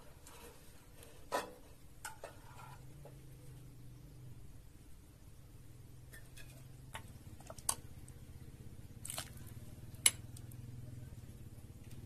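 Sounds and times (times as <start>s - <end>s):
low steady hum: 0.0s - 12.0s
utensil scraping: 0.1s - 3.0s.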